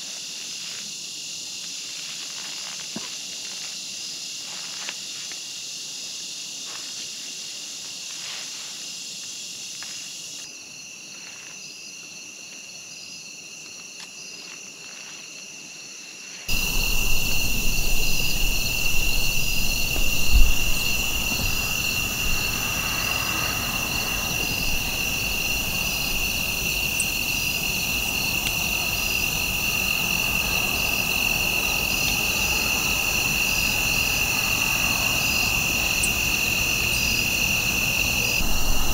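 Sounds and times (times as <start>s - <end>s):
low rumble: 16.5s - 26.4s, 38.4s - 38.9s
insect trilling: 16.5s - 38.9s
pulsing insect chirp: 16.5s - 38.9s.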